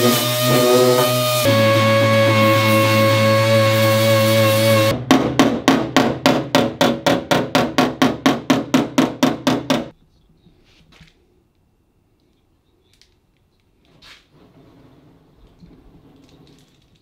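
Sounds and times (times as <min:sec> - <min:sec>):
hammer knocking on metal: 0:05.0 - 0:09.9.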